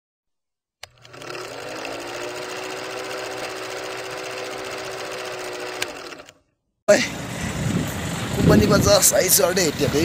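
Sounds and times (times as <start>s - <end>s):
film projector clatter: 0.8s - 6.4s
projector motor hum: 0.8s - 6.4s.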